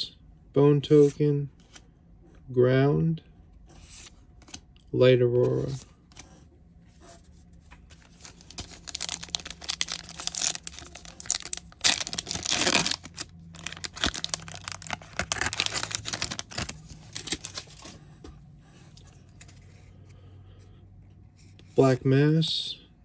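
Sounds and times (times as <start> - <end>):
foil pack crinkling: 8.0 - 18.0
foil pack ripping open: 8.3 - 17.8.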